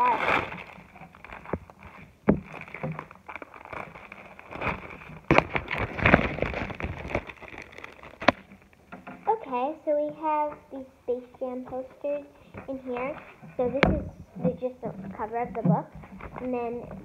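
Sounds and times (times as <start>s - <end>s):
plastic wrapping crinkling: 0.0s - 9.0s, 12.5s - 17.0s.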